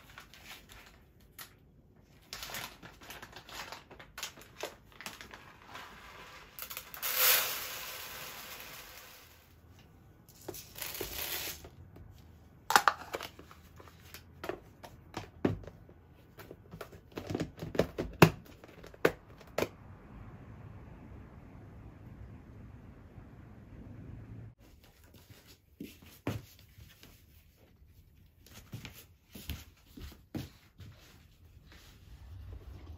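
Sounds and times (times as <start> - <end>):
dry rice pouring into container: 6.1 - 9.4.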